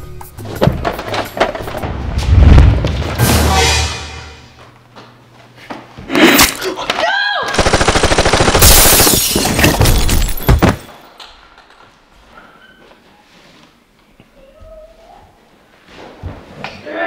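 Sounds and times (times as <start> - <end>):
sharp bang: 2.5 - 4.6
rapid automatic gunfire: 7.6 - 9.2.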